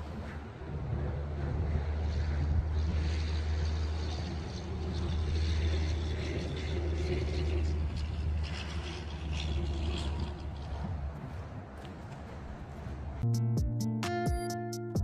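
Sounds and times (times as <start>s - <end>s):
wind rumbling on microphone: 0.0s - 13.2s.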